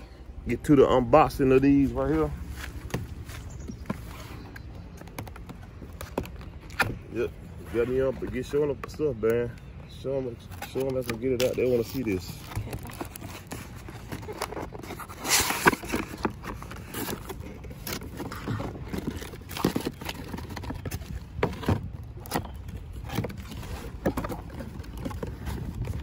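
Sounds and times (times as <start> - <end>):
cardboard knocks and scrapes: 2.0 - 7.0, 11.9 - 26.0
box sliding out of sleeve: 13.3 - 17.4.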